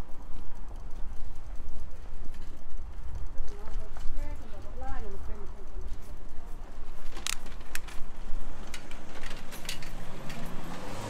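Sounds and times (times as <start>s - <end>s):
bicycle parts rattling and clicking: 0.0s - 11.0s
bicycle rolling over brick paving: 0.0s - 11.0s
motor vehicle engine rising in pitch: 9.8s - 11.0s.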